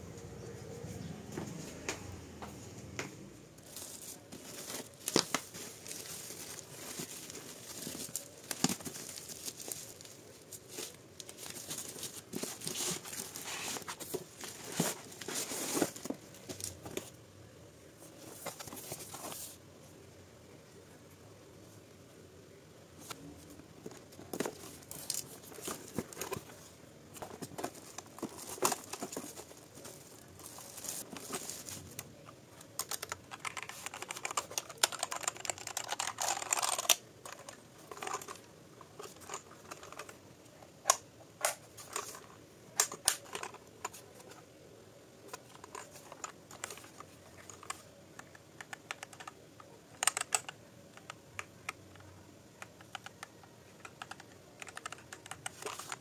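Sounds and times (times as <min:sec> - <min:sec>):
rustling noise: 0:03.6 - 0:17.1
mechanical keyboard keystrokes: 0:32.8 - 0:37.0, 0:50.0 - 0:51.2, 0:52.7 - 0:56.0.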